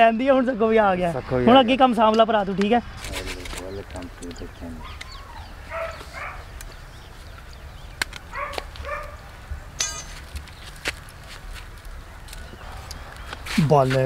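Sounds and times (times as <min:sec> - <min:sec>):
animal calling: 0:03.7 - 0:06.6, 0:08.3 - 0:09.3.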